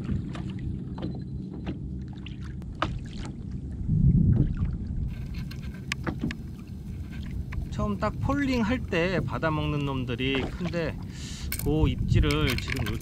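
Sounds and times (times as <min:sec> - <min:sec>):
water rumble: 0:00.0 - 0:13.0
light clicks and knocks: 0:05.2 - 0:07.7, 0:11.5 - 0:13.0.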